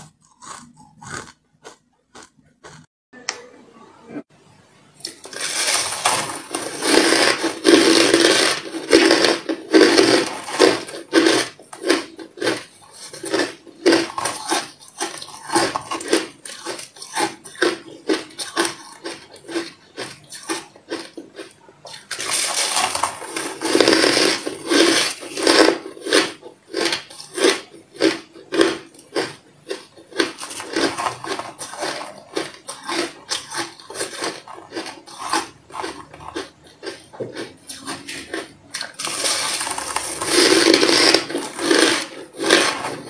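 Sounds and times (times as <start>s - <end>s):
ice crunching: 5.1s - 19.6s, 22.0s - 27.3s, 37.7s - 43.0s.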